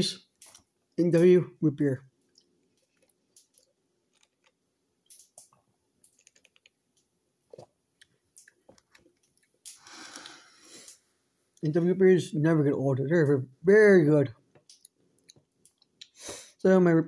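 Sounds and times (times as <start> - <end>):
sipping through a straw: 9.7 - 11.0.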